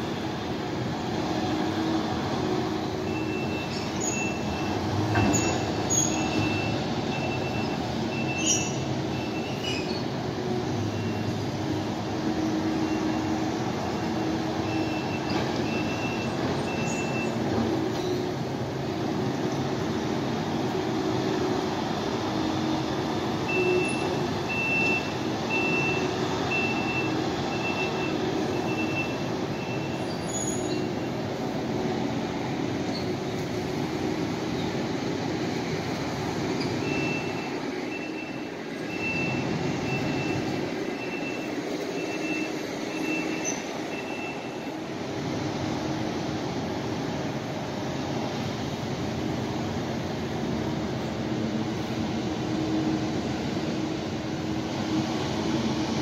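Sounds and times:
heavy construction machinery running: 0.0s - 56.0s
reversing alarm beeping: 3.0s - 9.6s, 10.8s - 11.9s, 12.8s - 17.4s, 23.3s - 30.1s, 36.6s - 44.9s.

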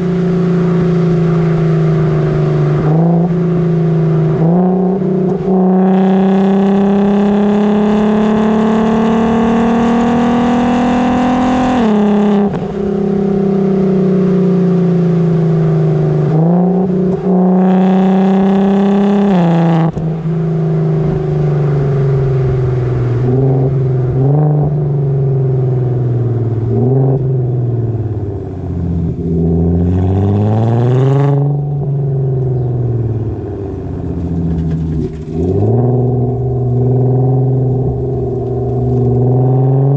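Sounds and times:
car engine revving through exhaust: 0.0s - 39.9s.

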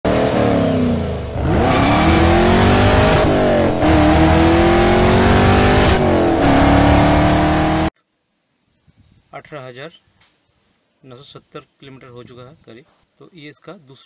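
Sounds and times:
car engine accelerating: 0.1s - 7.9s.

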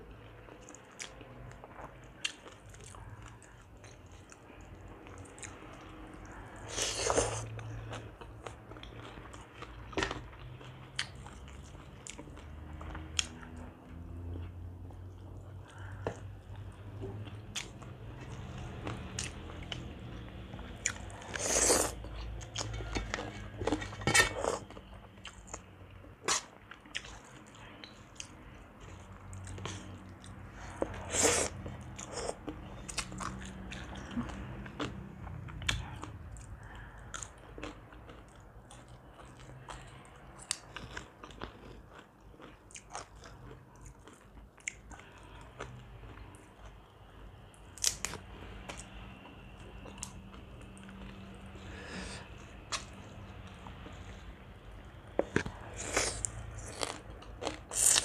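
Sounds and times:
crunchy food crunching: 30.8s - 45.4s, 55.2s - 58.0s.

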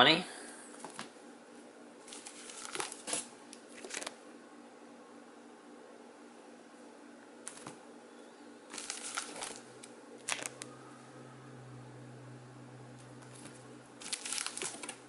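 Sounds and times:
low steady hum: 0.0s - 15.0s
plastic bags crinkling: 2.0s - 4.2s, 8.7s - 10.7s, 13.2s - 15.0s.

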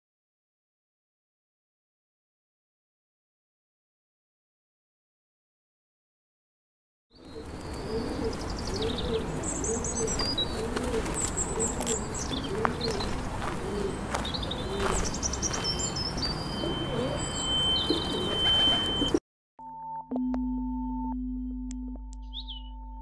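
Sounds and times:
pigeons cooing: 7.2s - 15.6s, 16.4s - 19.2s
small birds chirping: 7.2s - 19.2s, 22.2s - 22.8s.

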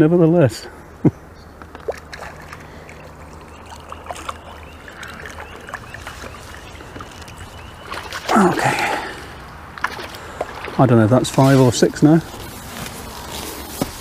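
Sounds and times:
fish splashing in water: 1.8s - 11.5s.

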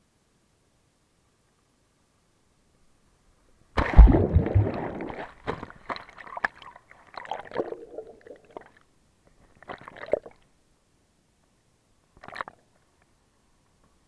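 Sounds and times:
underwater bubbles gurgling: 3.8s - 5.4s, 7.2s - 8.8s
loud splash into water: 3.8s - 6.0s.

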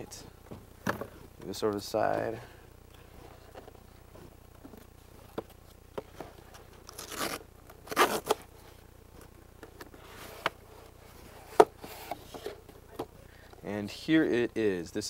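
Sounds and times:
cardboard box tearing: 6.9s - 8.5s.

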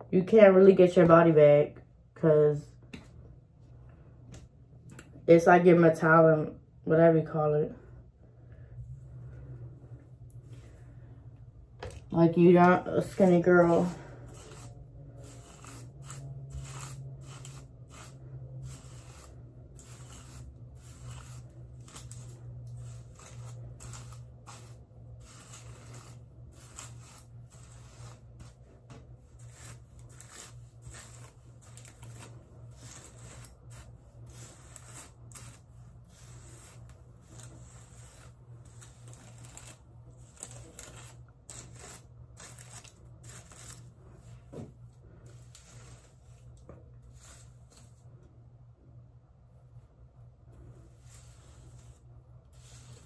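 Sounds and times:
steady low hum: 1.3s - 53.0s
hairbrush brushing hair: 12.3s - 48.2s, 50.6s - 53.0s.

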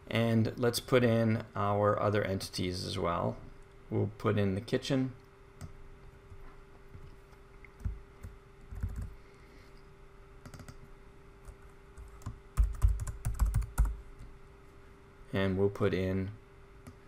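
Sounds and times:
faint steady hum: 0.0s - 17.0s
computer keyboard typing: 7.8s - 9.2s, 10.4s - 10.8s, 11.4s - 14.0s.

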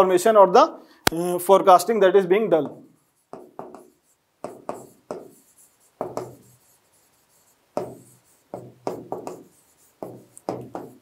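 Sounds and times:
stylus scratching on display: 3.0s - 11.0s.

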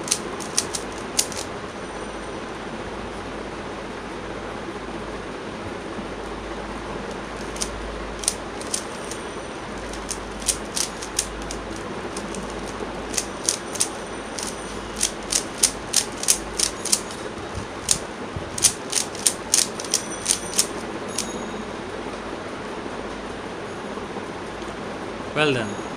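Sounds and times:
puzzle cube layers clicking: 0.0s - 1.5s, 7.1s - 9.2s, 9.8s - 20.8s.

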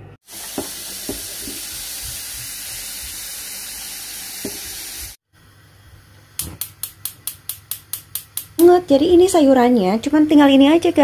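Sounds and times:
tap water running into a saucepan: 0.2s - 5.2s.

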